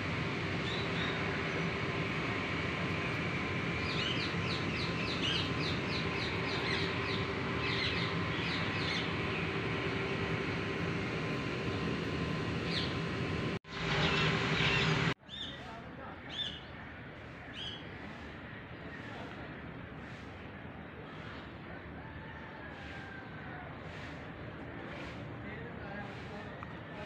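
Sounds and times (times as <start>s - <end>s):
steady outdoor hum: 0.0s - 27.0s
bird chirping: 3.8s - 9.5s, 12.7s - 13.0s.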